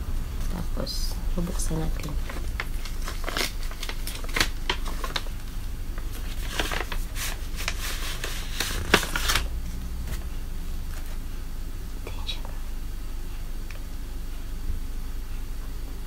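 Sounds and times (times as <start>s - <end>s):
paper envelope crackling and rustling: 2.0s - 10.3s.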